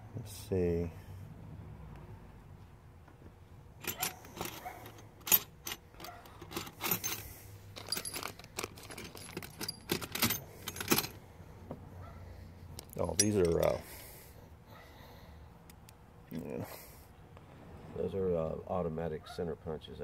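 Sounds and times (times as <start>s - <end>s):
metal hand tools clinking: 3.8s - 11.2s, 13.0s - 13.8s.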